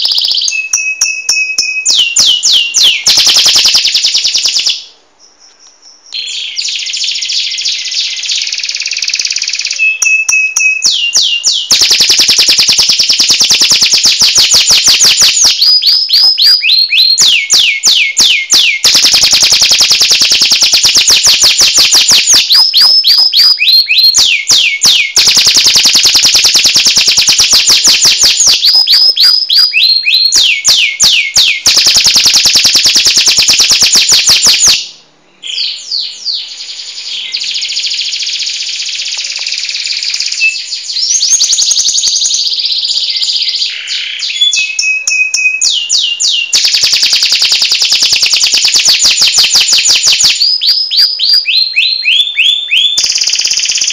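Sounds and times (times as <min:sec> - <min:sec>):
canary singing trills: 0:00.0 - 0:53.9.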